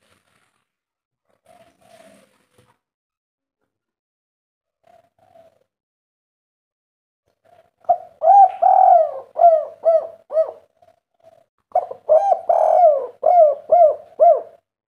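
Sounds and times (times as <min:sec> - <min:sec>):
dove cooing: 0:04.8 - 0:05.7, 0:07.4 - 0:14.7.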